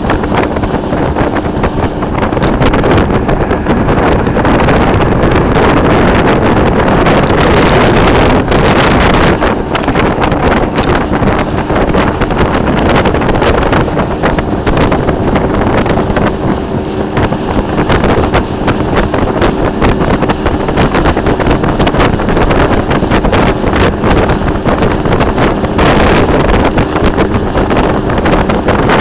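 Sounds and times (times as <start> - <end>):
boat engine hum: 0.0 - 29.0
wind buffeting microphone: 0.0 - 29.0.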